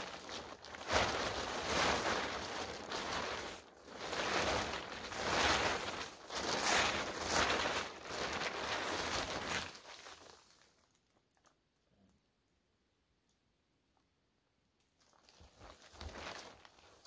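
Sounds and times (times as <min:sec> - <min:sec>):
nylon tarp rustling: 0:00.0 - 0:11.0, 0:15.0 - 0:17.0.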